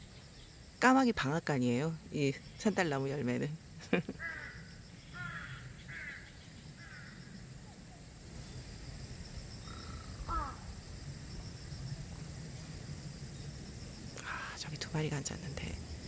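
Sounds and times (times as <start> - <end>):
crows cawing: 4.2 - 7.2, 9.6 - 10.7.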